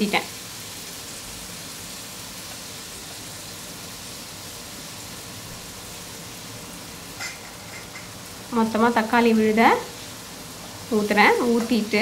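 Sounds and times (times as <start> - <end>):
sauce sizzling in hot oil: 0.0 - 12.0
spatula stirring in pan: 7.1 - 8.4.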